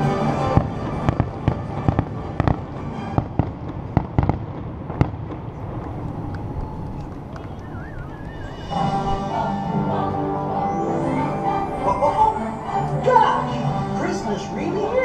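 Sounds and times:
music: 0:00.0 - 0:04.0, 0:08.4 - 0:15.0.

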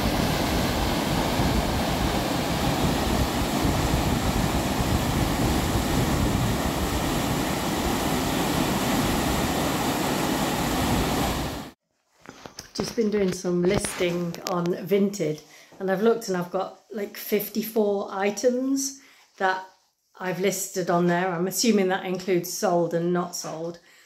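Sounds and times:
water rushing over weir: 0:00.0 - 0:11.8.

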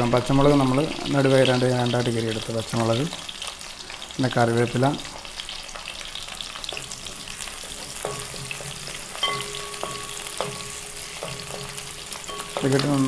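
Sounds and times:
vegetables sizzling in oil: 0:00.0 - 0:13.0
spoon stirring in pan: 0:05.8 - 0:13.0.

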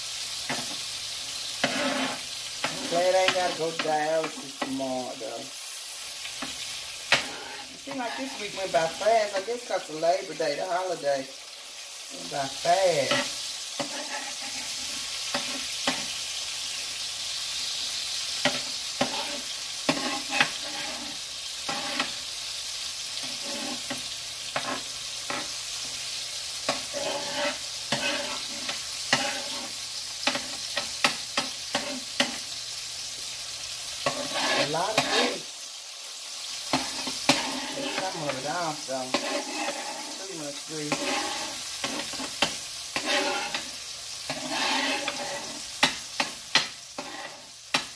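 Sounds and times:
burger patties sizzling: 0:00.0 - 0:47.9.

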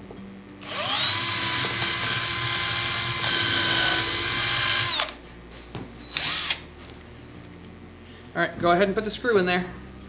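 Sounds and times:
cordless drill boring into wood: 0:00.6 - 0:05.1, 0:06.1 - 0:06.6.

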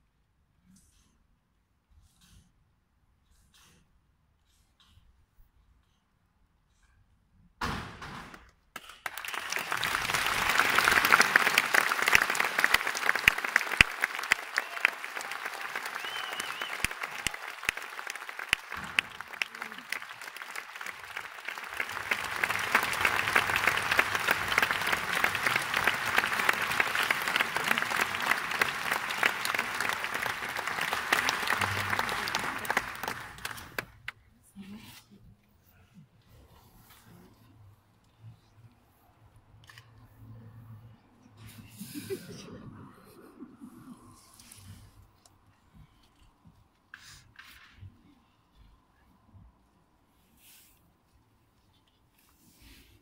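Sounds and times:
audience applauding: 0:08.8 - 0:34.1.

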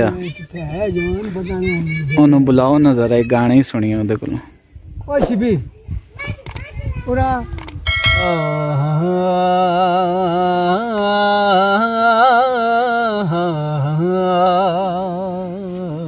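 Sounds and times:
man singing unaccompanied: 0:08.1 - 0:16.0.

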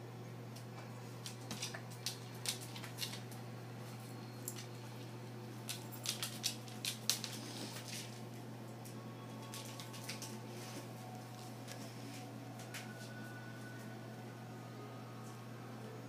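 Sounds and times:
steady low hum: 0:00.0 - 0:16.0
claws clicking on hard floor: 0:01.2 - 0:03.4, 0:05.7 - 0:08.2.

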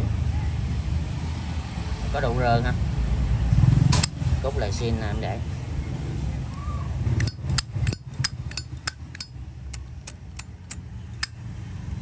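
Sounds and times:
low steady rumble: 0:02.8 - 0:12.0
lighter lid clicking: 0:07.2 - 0:09.3.

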